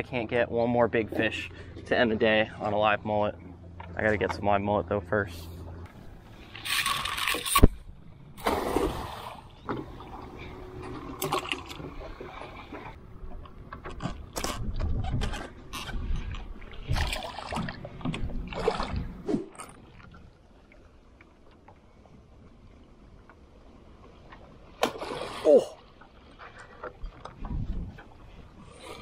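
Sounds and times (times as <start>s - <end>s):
water splashing and dripping: 16.3s - 20.2s.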